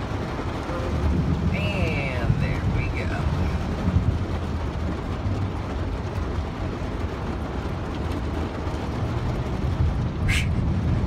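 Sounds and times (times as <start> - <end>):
heavy rain on a car: 0.0 - 11.0
tyres running through floodwater: 0.0 - 11.0.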